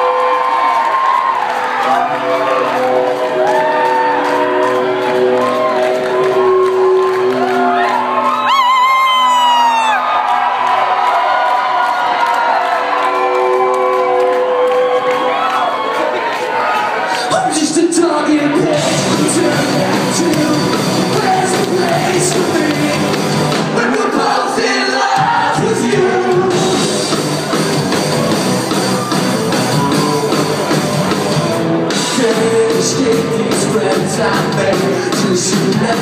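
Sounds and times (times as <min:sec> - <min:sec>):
live rock band playing: 0:01.6 - 0:10.0, 0:17.6 - 0:24.4, 0:25.0 - 0:36.0
man singing: 0:17.2 - 0:27.1, 0:31.9 - 0:36.0.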